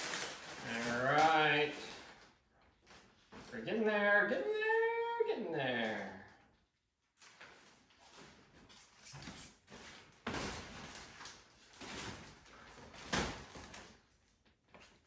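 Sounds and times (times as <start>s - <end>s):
kite fabric rustling: 0.0s - 2.2s.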